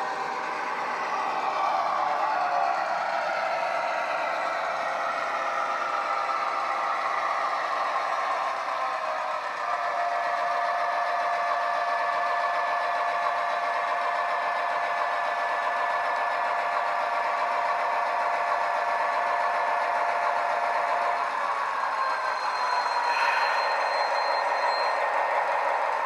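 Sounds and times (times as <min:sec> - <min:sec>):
diesel engine running: 0:00.0 - 0:26.0
steady whine: 0:00.0 - 0:26.0.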